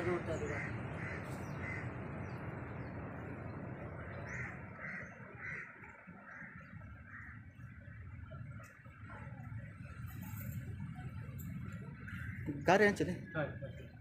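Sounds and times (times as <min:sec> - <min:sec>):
bird calling: 0:00.0 - 0:03.0, 0:03.8 - 0:08.4.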